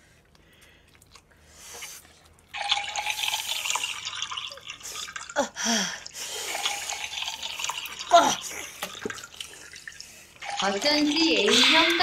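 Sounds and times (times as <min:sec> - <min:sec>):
gurgling draining liquid sound: 0:02.4 - 0:12.0.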